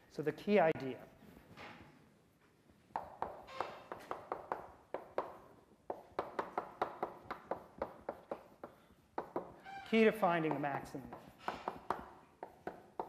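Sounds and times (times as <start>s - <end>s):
chalk tapping on blackboard: 2.9s - 9.6s, 10.4s - 13.0s.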